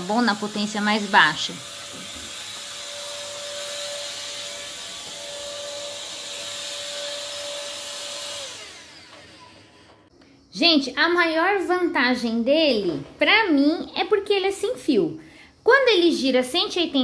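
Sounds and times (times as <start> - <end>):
stick vacuum running: 0.0 - 10.1
vacuum motor spinning down: 0.0 - 10.1.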